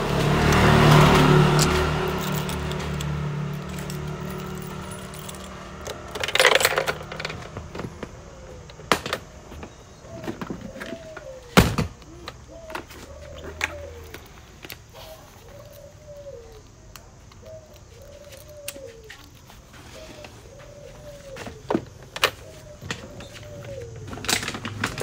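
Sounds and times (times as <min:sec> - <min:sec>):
bird calling: 0:00.0 - 0:25.0
rattling clatter: 0:01.6 - 0:08.1.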